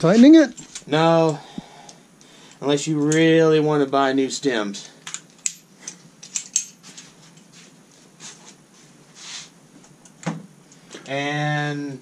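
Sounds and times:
hand tool clicks and rustles: 0:00.5 - 0:01.4, 0:05.0 - 0:07.5.

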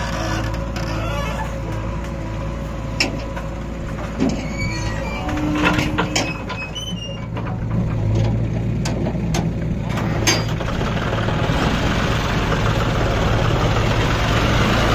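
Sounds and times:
diesel engines running: 0:00.0 - 0:14.9
backhoe bucket knocks and clatter: 0:05.2 - 0:10.6.

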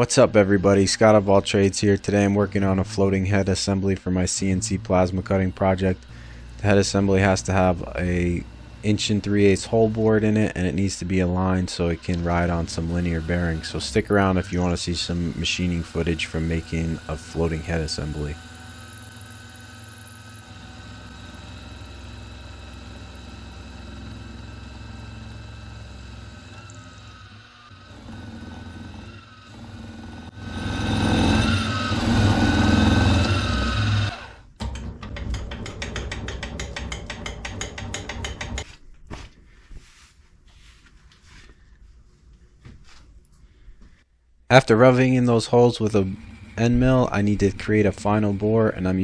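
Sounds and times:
milling machine motor hum: 0:00.1 - 0:38.6, 0:45.8 - 0:49.0
quiet handling sounds: 0:38.7 - 0:44.0.

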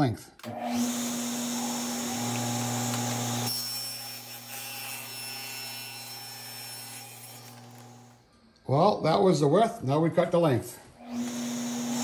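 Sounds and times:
table saw cutting plastic sheet: 0:00.5 - 0:08.2, 0:11.0 - 0:12.0.

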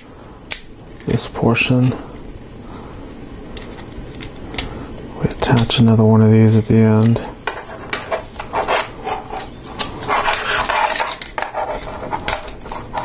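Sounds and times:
plastic parts scraping: 0:07.0 - 0:13.0.

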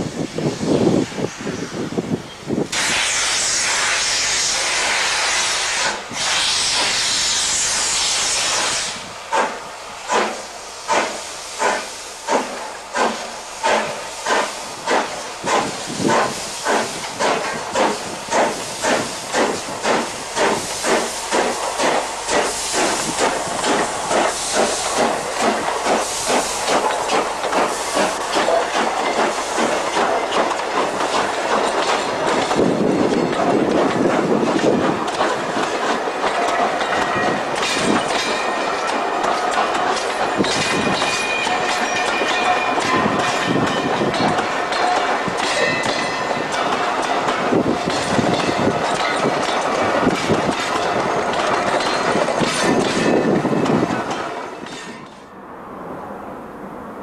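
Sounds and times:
steam hissing from locomotive: 0:00.0 - 0:55.1
steam locomotive exhaust chuffs: 0:02.7 - 0:55.2.

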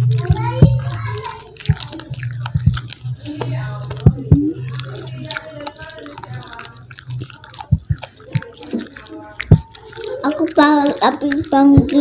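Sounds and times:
low hum: 0:00.0 - 0:05.1
chewing crispy fried chicken: 0:00.0 - 0:12.0
wet mouth smacks: 0:00.0 - 0:12.0.

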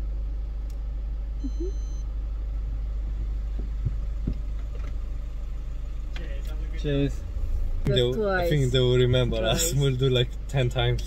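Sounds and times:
car engine idling: 0:00.0 - 0:11.0
high beep: 0:01.4 - 0:02.0.

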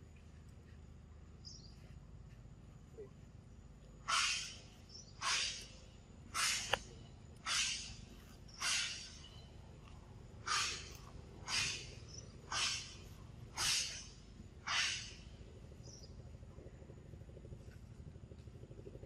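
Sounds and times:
steady low hum: 0:00.0 - 0:19.0
short hissing pulses: 0:04.0 - 0:06.8, 0:07.4 - 0:09.3, 0:10.4 - 0:15.4.

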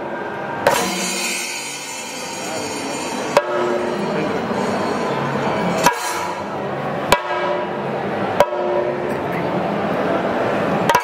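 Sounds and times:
continuous drumming: 0:00.6 - 0:07.8
sharp ringing drum strikes: 0:00.6 - 0:07.8.

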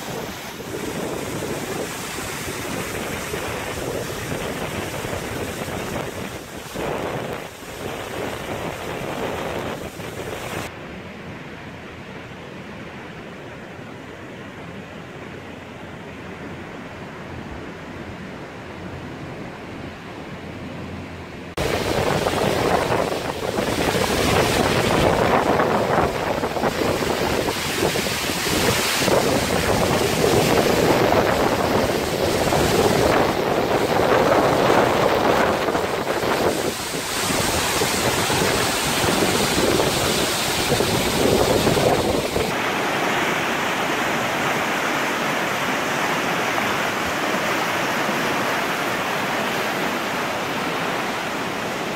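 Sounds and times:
wind buffeting microphone: 0:00.0 - 0:10.7, 0:21.6 - 0:42.6
fast churning river: 0:00.0 - 0:51.9
waterfall rushing: 0:21.5 - 0:51.9.

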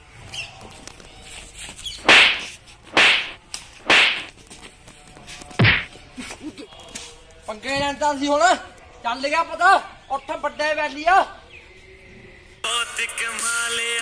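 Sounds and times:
whip-like hit whacks: 0:02.0 - 0:04.3, 0:05.6 - 0:05.9
heavy blow with low thud: 0:05.6 - 0:05.9.

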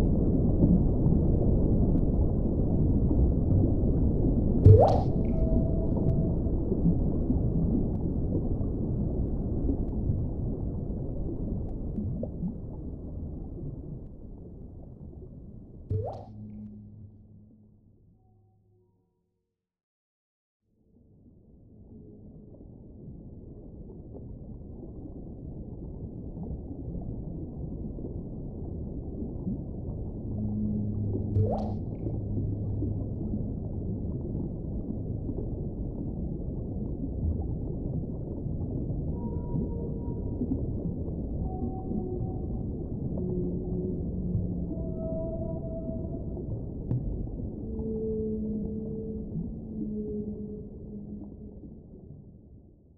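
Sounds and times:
deep underwater rumble: 0:00.0 - 0:18.9, 0:20.9 - 0:52.9
faint whale calls: 0:41.3 - 0:46.6, 0:47.5 - 0:51.8.

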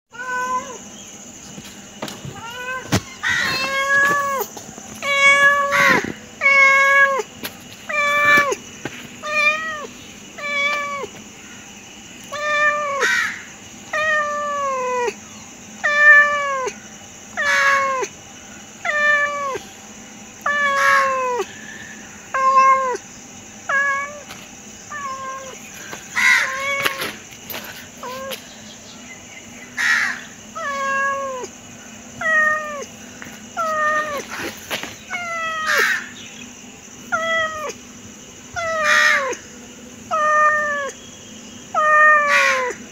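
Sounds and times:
cat meowing: 0:00.1 - 0:00.8, 0:02.2 - 0:07.3, 0:09.2 - 0:11.1, 0:12.3 - 0:13.2, 0:18.8 - 0:19.6, 0:20.4 - 0:21.5, 0:22.4 - 0:23.0, 0:23.7 - 0:24.3, 0:24.9 - 0:27.2, 0:30.6 - 0:31.5, 0:32.2 - 0:32.9, 0:33.6 - 0:34.5, 0:35.1 - 0:36.1, 0:37.1 - 0:37.8, 0:38.6 - 0:39.4, 0:40.1 - 0:41.0, 0:41.7 - 0:42.8.

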